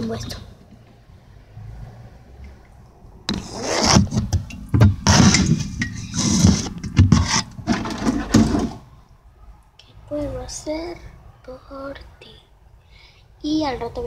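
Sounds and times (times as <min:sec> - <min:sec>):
microphone rubbing on plastic tub: 0:03.3 - 0:08.8.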